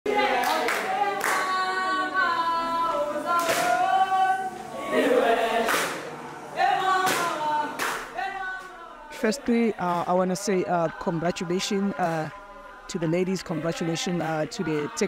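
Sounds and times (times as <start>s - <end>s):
group singing in harmony: 0.1s - 15.0s
sharp clap-like beat: 3.4s - 3.8s, 5.6s - 6.1s, 7.0s - 8.2s.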